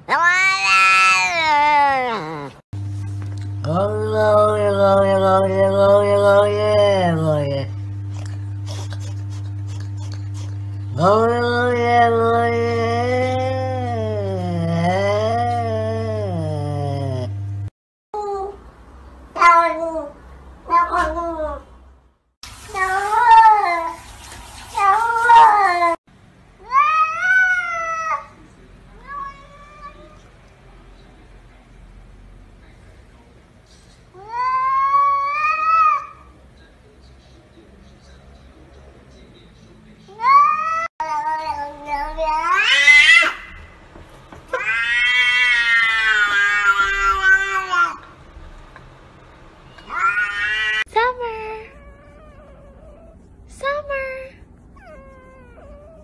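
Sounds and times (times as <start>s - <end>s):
cat meowing: 0.0s - 2.5s, 20.7s - 21.7s, 40.2s - 43.6s, 44.5s - 48.0s, 49.8s - 50.9s.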